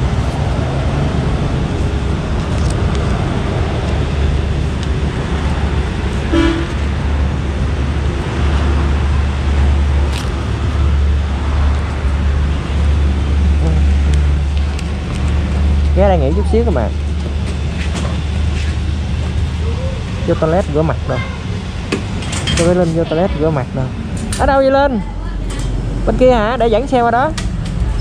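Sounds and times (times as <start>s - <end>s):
motorcycle engine and wind rumble: 0.0s - 28.0s
traffic: 0.0s - 28.0s
horn toot: 6.3s - 6.8s.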